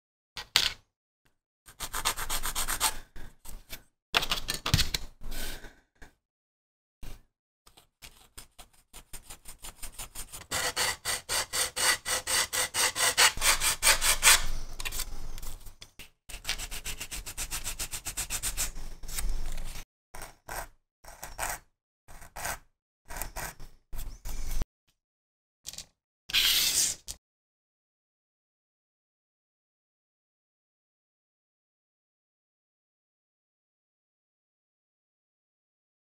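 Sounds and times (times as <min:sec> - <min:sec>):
metal file rasping on plastic: 0:09.4 - 0:14.6.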